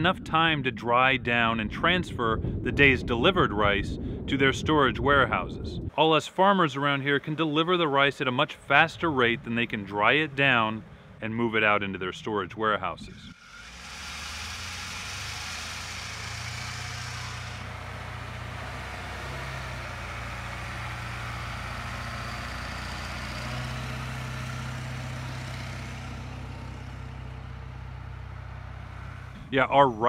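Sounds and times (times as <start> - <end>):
diesel engines running: 6.8 - 30.0.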